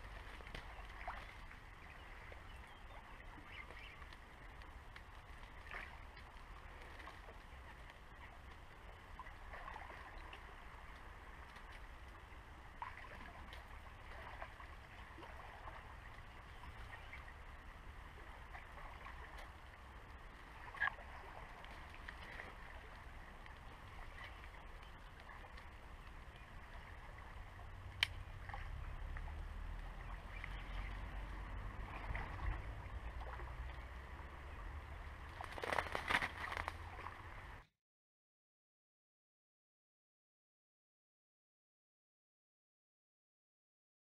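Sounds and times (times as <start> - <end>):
water sloshing and splashing: 0.0 - 37.6
low rumble: 22.7 - 35.4.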